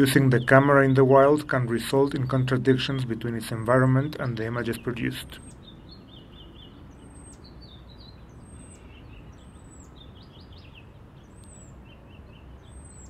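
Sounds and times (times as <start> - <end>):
low outdoor rumble: 0.0 - 5.4
small birds chirping: 0.0 - 13.0.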